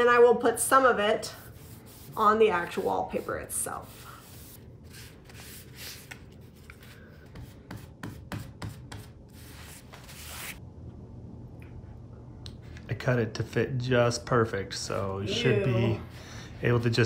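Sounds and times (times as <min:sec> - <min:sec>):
foam brush rubbing wallpaper: 0:01.2 - 0:06.1, 0:06.8 - 0:10.6.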